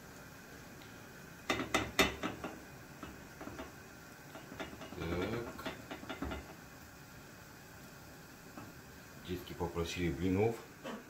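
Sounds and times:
spatula knocking frying pan: 1.5s - 6.6s.

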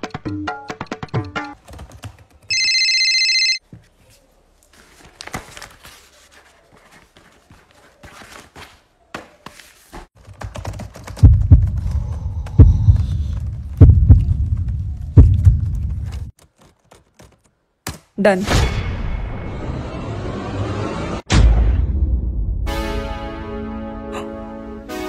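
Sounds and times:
laptop keyboard typing: 1.6s - 3.6s, 10.2s - 11.8s
deep booming thumps: 11.2s - 11.9s, 12.6s - 16.0s.

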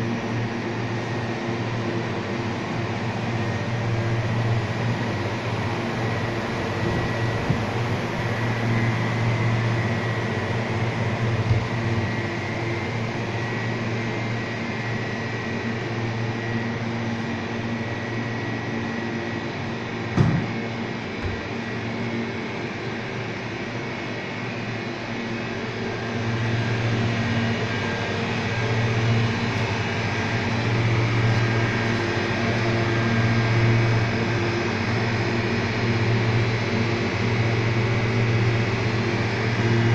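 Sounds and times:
refrigeration fan and motor hum: 0.0s - 39.9s
knock: 20.2s - 20.6s.

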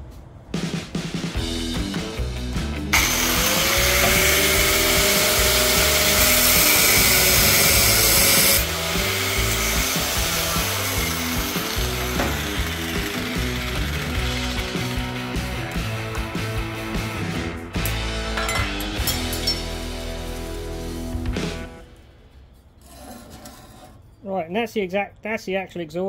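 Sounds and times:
background music with steady beat: 0.0s - 22.4s
angle grinder cutting metal pipe: 2.9s - 16.3s.

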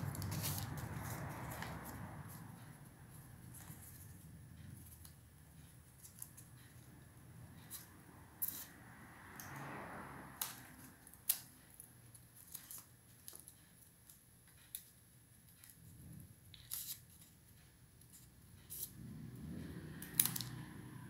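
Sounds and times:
scissors snipping paper: 0.0s - 2.4s, 7.7s - 9.6s, 10.3s - 15.0s, 16.5s - 17.4s
soft paper rustle: 0.0s - 2.6s.

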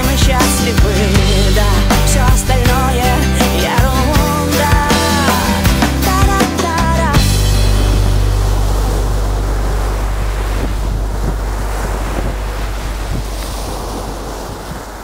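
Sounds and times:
waves breaking on beach: 0.0s - 15.0s
steady low hum: 7.0s - 15.0s.

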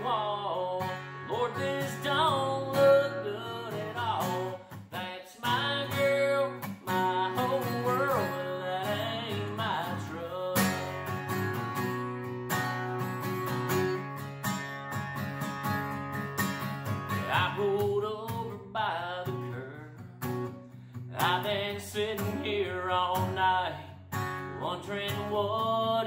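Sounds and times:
man singing: 0.0s - 11.1s, 17.1s - 20.2s, 21.1s - 26.0s
acoustic guitar strumming: 0.0s - 26.0s.

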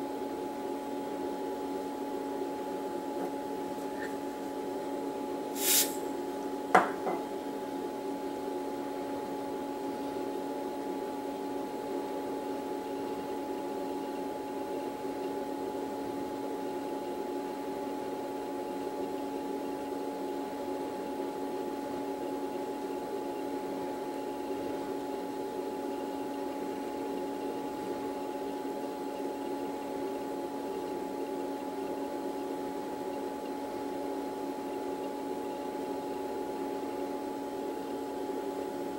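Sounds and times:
steady electrical hum: 0.0s - 38.9s
brief hiss: 5.6s - 6.1s.

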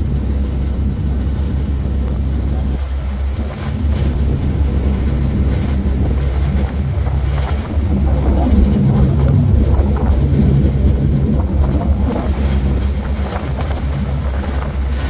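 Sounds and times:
ferry engine droning: 0.0s - 15.0s
wind gusting across microphone: 0.0s - 15.0s.

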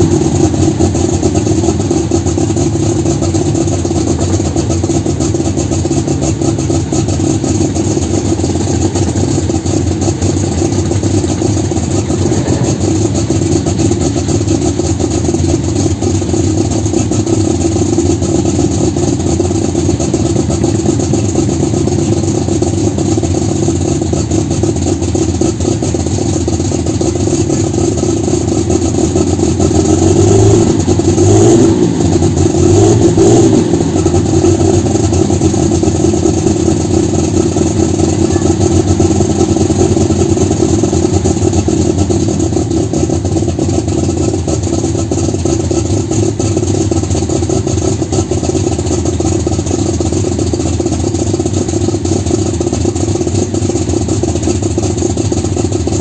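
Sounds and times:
tractor engine revving: 0.0s - 47.2s.

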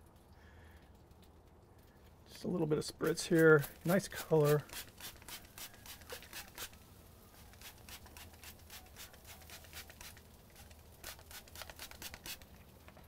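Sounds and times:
spray bottle squirts: 3.0s - 6.8s, 7.4s - 12.6s.

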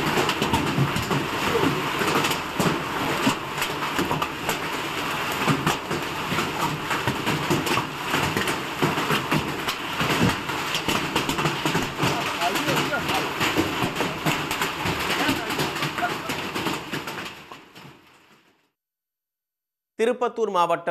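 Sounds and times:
rain hissing: 0.0s - 6.0s, 9.6s - 17.0s
hailstones striking: 0.0s - 18.5s.

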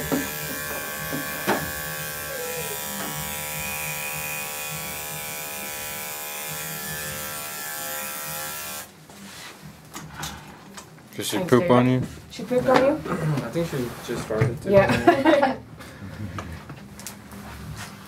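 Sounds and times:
electric clipper buzzing: 0.0s - 8.9s.

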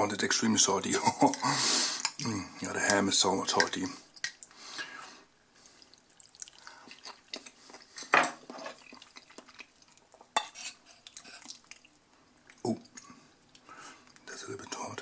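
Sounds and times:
fork scraping a plate: 10.4s - 11.4s.

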